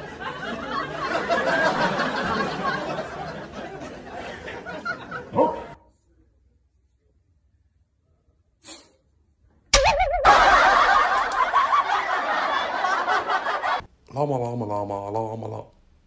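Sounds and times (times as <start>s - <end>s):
burst of laughter: 0.1s - 5.7s, 10.0s - 13.8s.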